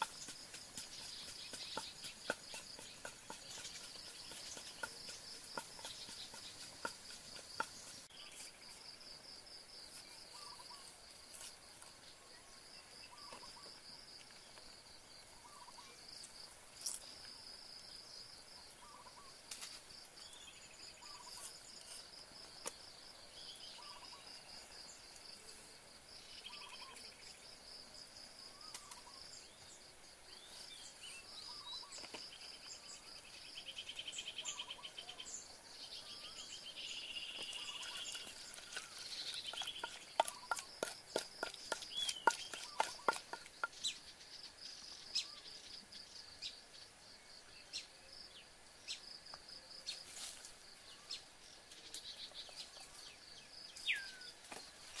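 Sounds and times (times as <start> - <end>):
sharp knocks and taps: 0.0 - 8.0, 38.2 - 43.8
insects trilling: 0.0 - 55.0.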